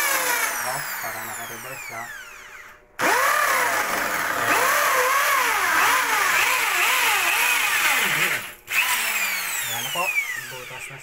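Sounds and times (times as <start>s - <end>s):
hammer drill boring into wall: 2.3s - 10.8s.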